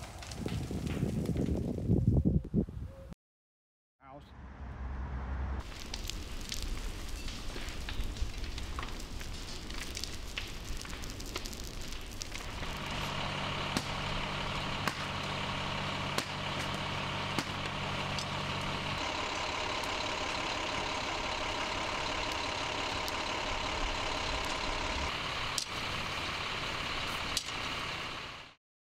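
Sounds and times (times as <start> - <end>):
heavy engine whining and humming: 4.4 - 28.6
sharp pops or clicks: 14.8 - 15.2.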